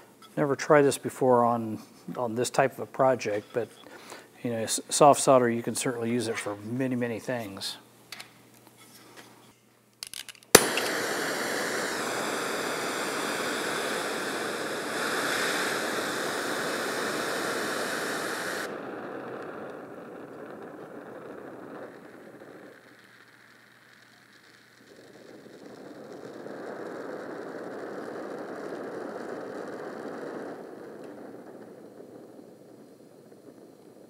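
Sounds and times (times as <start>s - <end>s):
gas flame hissing: 0.0s - 7.8s, 10.5s - 34.0s
torch lighting pop: 10.1s - 33.9s.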